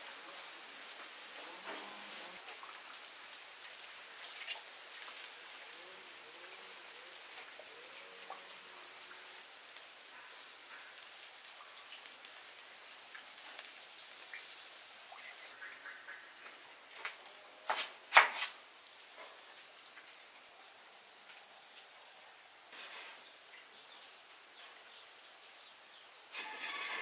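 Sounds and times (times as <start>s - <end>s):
steady rain falling: 0.0s - 27.0s
water drips: 0.8s - 5.7s, 6.4s - 15.6s.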